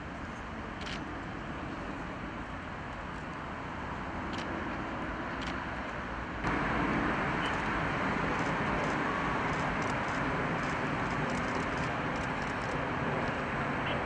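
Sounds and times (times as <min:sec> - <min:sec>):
distant road traffic: 0:00.0 - 0:14.0.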